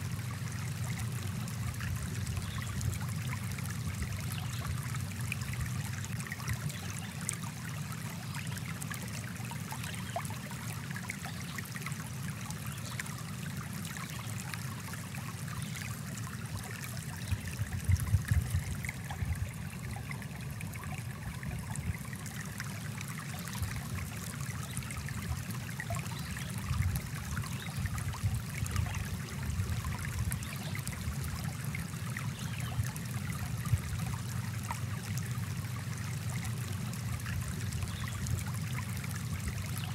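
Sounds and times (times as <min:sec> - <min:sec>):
stream flowing over rocks: 0:00.0 - 0:39.9.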